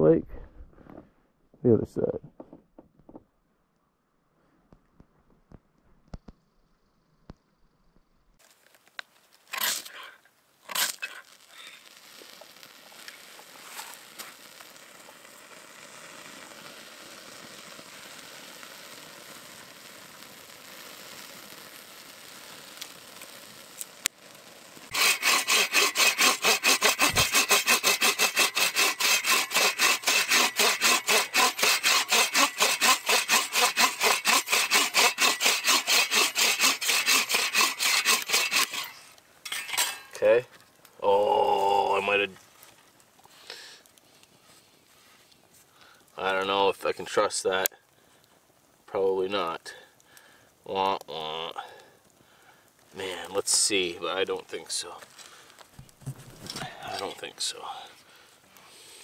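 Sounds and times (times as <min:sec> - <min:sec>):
faint steady hiss: 0:08.3 - 0:25.0, 0:38.8 - 0:59.0
hand saw cutting wood: 0:09.5 - 0:10.1, 0:10.7 - 0:11.2, 0:24.9 - 0:40.2.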